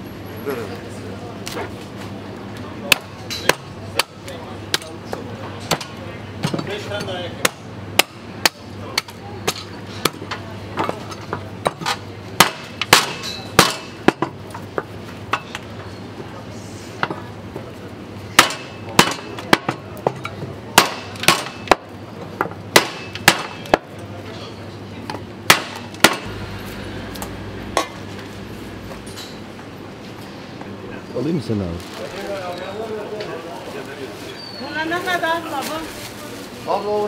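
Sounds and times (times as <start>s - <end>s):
meat cleaver chopping on block: 22.7s - 23.6s.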